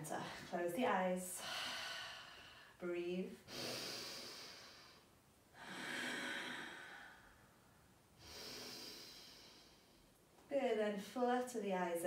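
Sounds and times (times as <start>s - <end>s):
woman breathing slowly: 1.3s - 2.8s, 3.4s - 10.2s.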